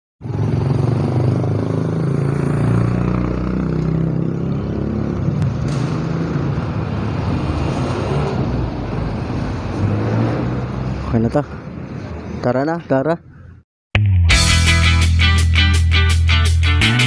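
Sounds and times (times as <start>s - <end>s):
street traffic noise: 0.2s - 13.7s.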